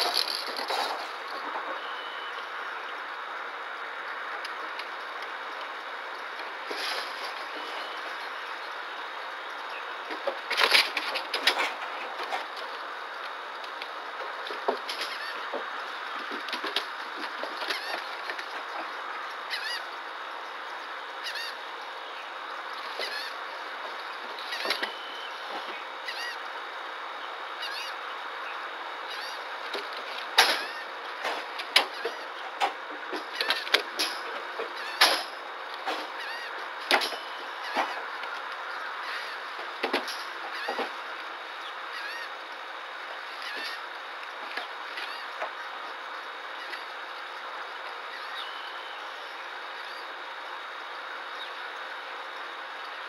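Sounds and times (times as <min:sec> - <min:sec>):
steady hiss: 0:00.0 - 0:53.0
faint high chirps: 0:01.8 - 0:02.5.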